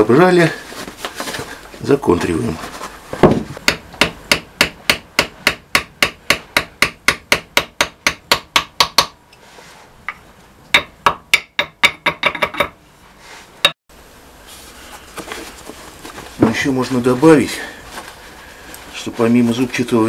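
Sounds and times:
hammer tapping on metal: 3.7 - 9.2, 10.1 - 12.8.

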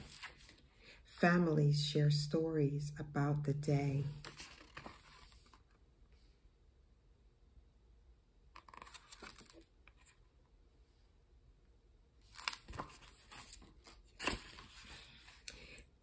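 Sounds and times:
book pages rustling: 0.0 - 0.6, 4.1 - 5.8, 8.6 - 10.2, 12.2 - 15.5.

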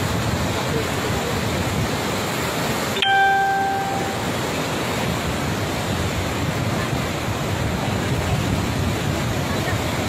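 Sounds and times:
flooded river rushing: 0.0 - 10.0
bell-like ding: 3.0 - 4.2.

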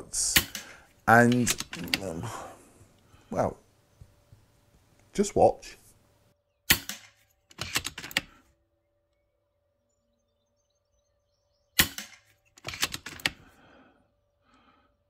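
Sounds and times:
metallic clicks of rifle action: 0.3 - 2.1, 6.7 - 8.4, 11.8 - 13.4
air rifle shot: 6.7 - 7.2, 11.8 - 12.2.

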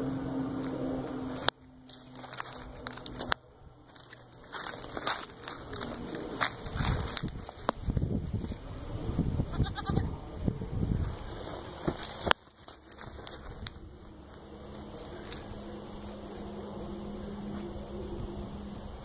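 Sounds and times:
goat bleating: 9.5 - 10.1.

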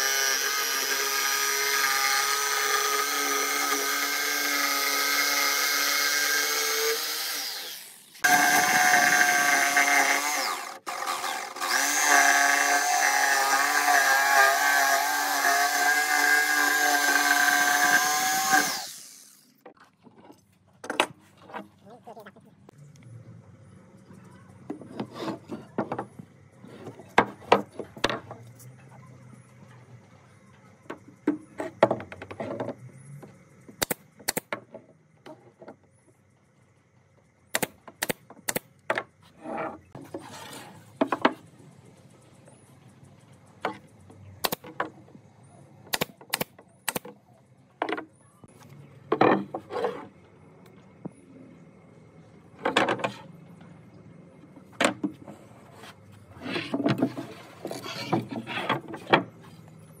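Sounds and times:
boards knocking and scraping: 24.7 - 28.5, 30.9 - 33.8, 37.8 - 41.5, 49.1 - 50.2, 52.6 - 53.3, 54.6 - 59.7
nail gun firing: 37.5 - 38.7, 45.9 - 47.1.

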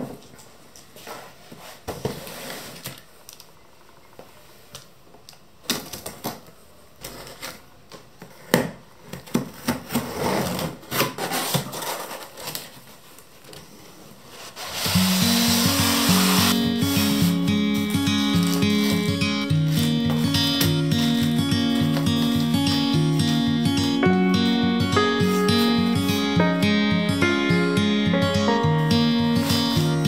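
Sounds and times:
cardboard rustling: 9.2 - 24.0
background music: 14.8 - 30.0.

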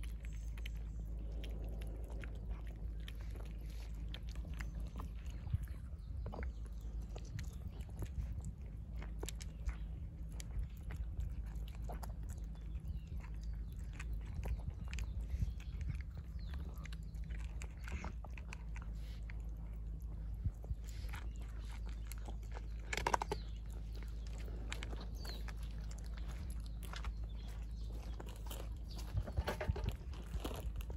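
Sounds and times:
cats crunching kibble: 0.0 - 30.9
low background hum: 0.0 - 30.9.

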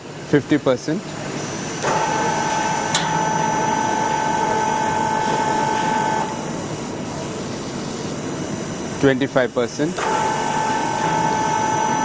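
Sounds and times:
hydraulic actuator whining: 1.3 - 7.9, 9.6 - 12.0.

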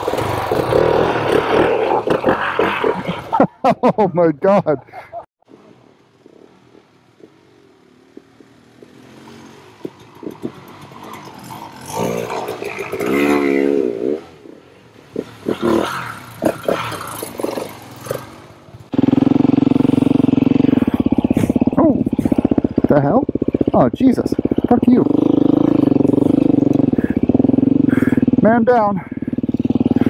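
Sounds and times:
motorcycle engine running close: 0.0 - 2.4, 6.0 - 30.0
motorcycle engines revving: 0.0 - 30.0.

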